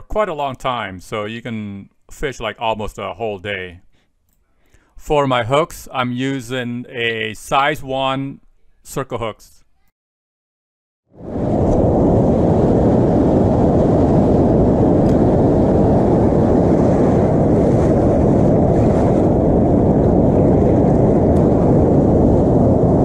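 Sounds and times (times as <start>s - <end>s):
wind noise on microphone: 11.1s - 23.0s.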